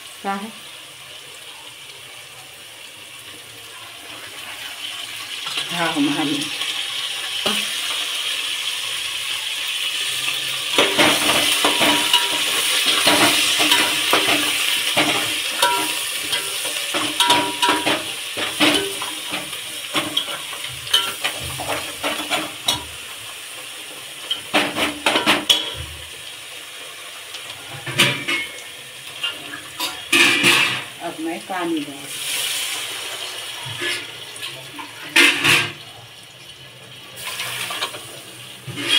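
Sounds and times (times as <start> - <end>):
food sizzling in a pot: 0.0 - 38.9
metal utensils clinking on pots: 10.1 - 23.0, 24.2 - 26.1, 27.3 - 31.7, 33.6 - 36.0, 37.2 - 38.9.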